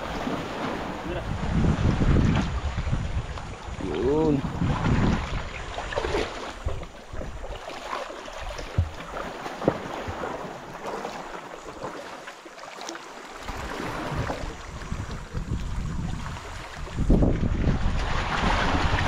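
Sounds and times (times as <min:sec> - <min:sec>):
wind buffeting microphone: 0:00.0 - 0:07.5, 0:13.5 - 0:19.0
sea water splashing: 0:00.0 - 0:19.0.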